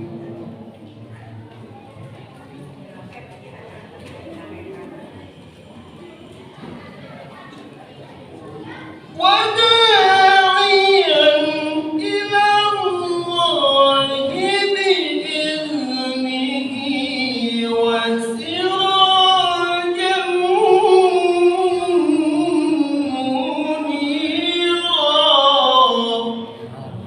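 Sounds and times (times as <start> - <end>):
man chanting through loudspeaker: 9.2 - 27.0.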